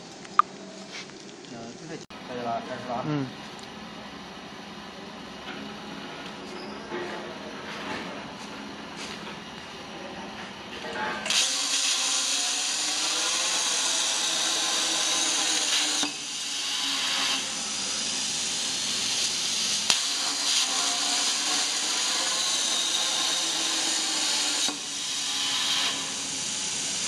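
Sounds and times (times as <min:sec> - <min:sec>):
plasma torch hissing rush: 0:11.3 - 0:27.0.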